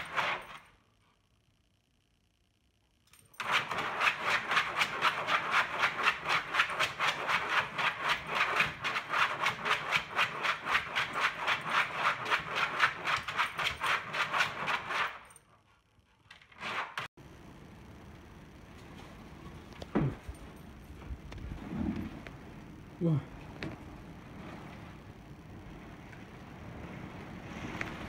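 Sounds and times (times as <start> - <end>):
dog claws scratching: 3.4 - 15.4.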